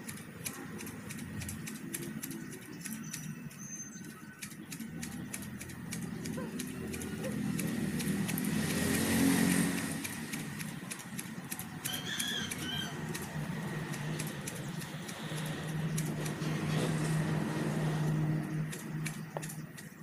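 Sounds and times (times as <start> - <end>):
passing motor vehicle: 0.0 - 20.0
scissors snipping grass: 0.0 - 20.0
bird chirps: 0.1 - 7.8, 10.6 - 16.4.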